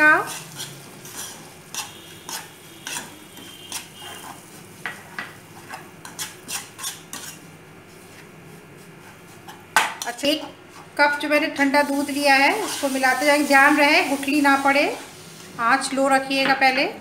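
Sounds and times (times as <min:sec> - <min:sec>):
metal spoon scraping a pan: 0:00.0 - 0:07.5, 0:11.6 - 0:14.2.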